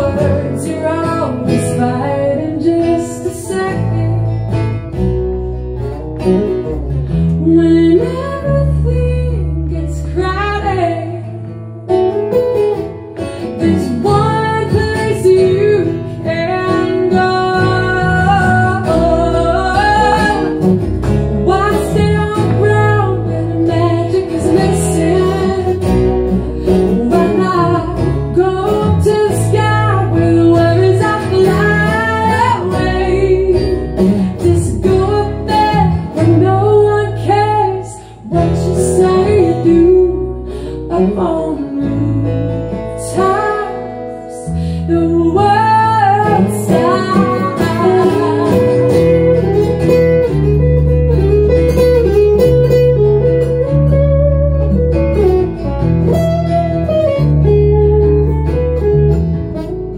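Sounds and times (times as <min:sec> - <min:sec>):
woman singing: 0:00.0 - 0:04.7, 0:07.1 - 0:11.6, 0:13.2 - 0:51.2
acoustic guitar strumming: 0:00.0 - 0:59.9
bass guitar: 0:00.0 - 0:59.9
second guitar: 0:00.0 - 0:59.9.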